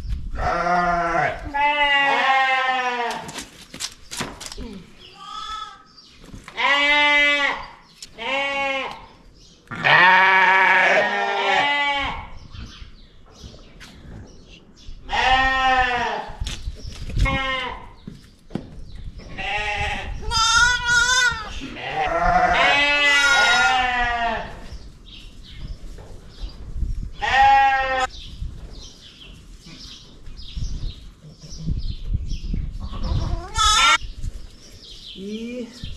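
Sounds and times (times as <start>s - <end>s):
sheep bleating: 9.7s - 12.2s, 19.4s - 24.5s.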